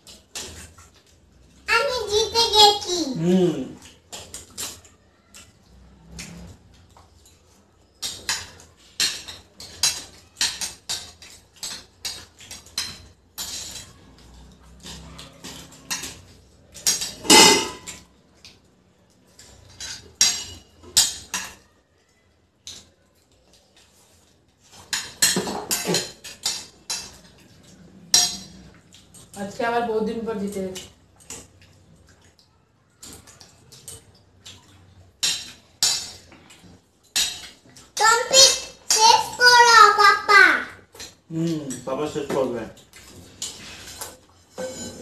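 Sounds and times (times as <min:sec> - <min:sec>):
cutlery clatter: 0:00.0 - 0:01.1, 0:03.8 - 0:18.6, 0:19.3 - 0:21.7, 0:23.5 - 0:29.4, 0:30.4 - 0:32.2, 0:33.0 - 0:39.3, 0:40.9 - 0:45.0
cutlery clinking on plates: 0:03.8 - 0:18.6, 0:19.3 - 0:21.7, 0:23.8 - 0:29.4, 0:33.0 - 0:39.1, 0:40.9 - 0:45.0.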